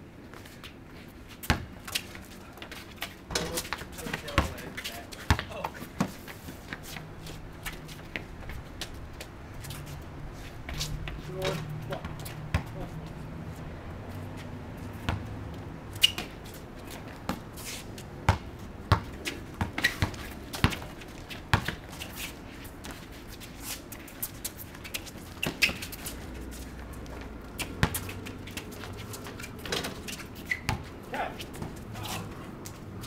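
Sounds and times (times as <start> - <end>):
basketball bouncing on concrete: 1.4 - 1.7, 3.3 - 6.2, 11.4 - 12.9, 14.9 - 15.4, 18.2 - 21.9, 27.0 - 31.9.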